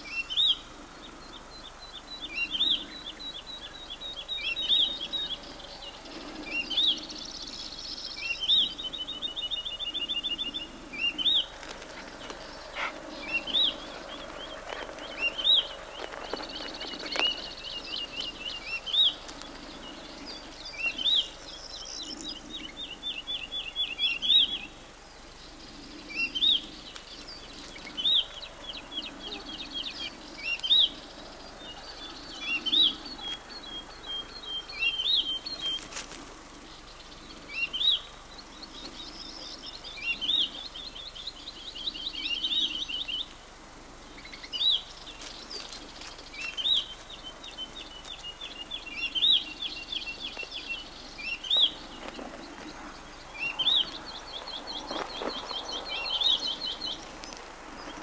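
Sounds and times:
songbird singing repeated phrase: 44.0 - 58.0.

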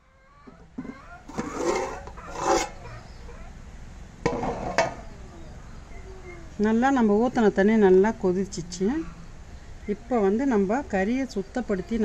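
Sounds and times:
metal lid scraping cooking pot: 0.8 - 2.8.

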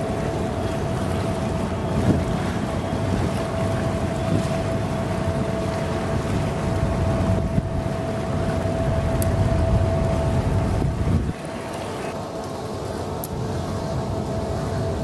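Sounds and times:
wind buffeting microphone: 0.0 - 11.6
ship engine rumble: 0.0 - 15.0.

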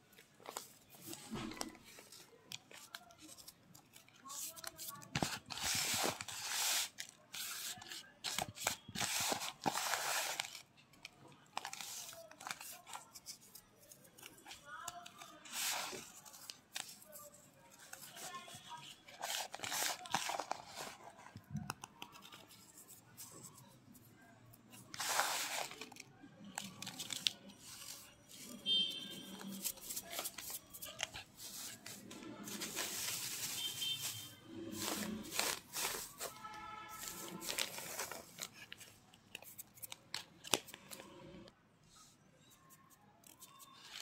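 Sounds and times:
plastic sheet crinkling: 25.0 - 41.0.

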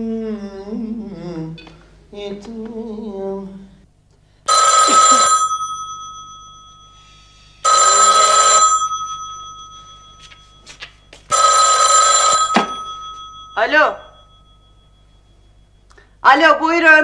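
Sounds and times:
telephone ringing: 4.5 - 15.9.

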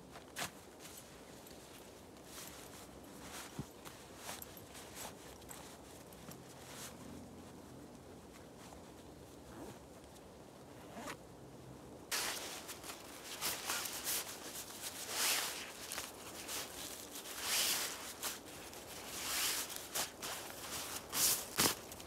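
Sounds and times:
tarp rustling over dry leaves: 12.1 - 22.0.

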